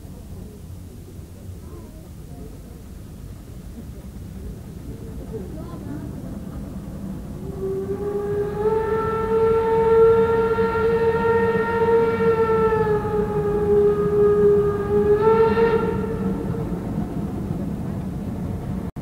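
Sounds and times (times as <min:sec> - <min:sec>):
locomotive low rumble: 0:00.0 - 0:19.0
steam locomotive whistle: 0:07.4 - 0:17.0.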